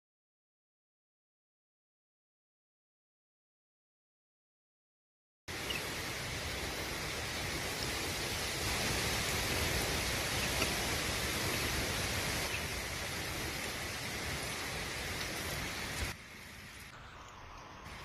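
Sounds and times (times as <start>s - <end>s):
running water hiss: 5.5s - 18.0s.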